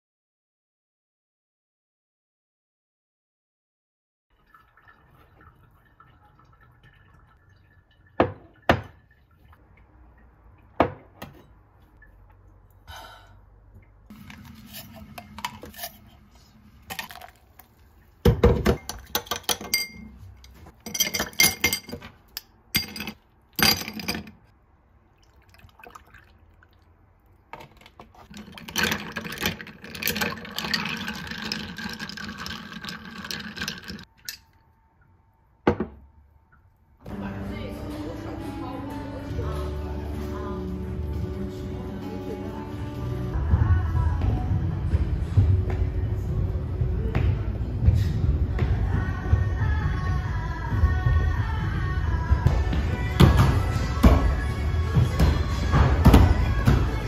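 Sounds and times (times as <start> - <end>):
liquid pouring: 4.3 - 10.7, 13.8 - 19.2, 25.1 - 34.7
ice being stirred: 14.1 - 18.0, 27.6 - 34.4
ice cubes clinking into glass: 22.8 - 24.3, 28.2 - 34.4.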